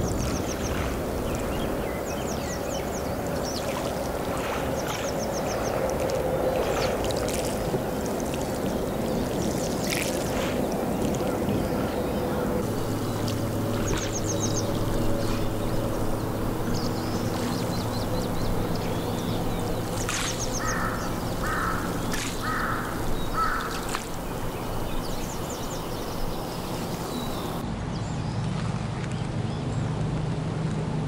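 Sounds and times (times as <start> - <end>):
steady low drone: 0.0 - 27.8
crow cawing: 20.6 - 23.8.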